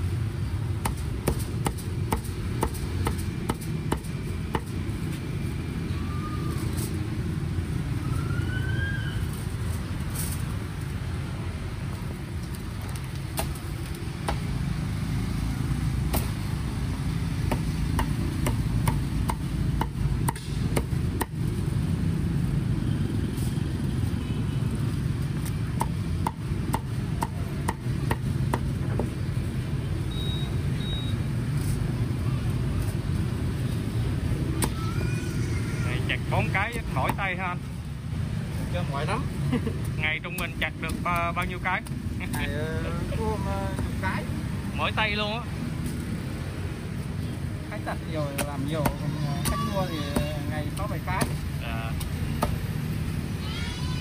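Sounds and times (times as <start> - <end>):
low street traffic rumble: 0.0 - 54.0
cleaver chopping on wooden block: 0.8 - 4.7, 17.4 - 21.4, 25.8 - 29.1, 52.0 - 52.6.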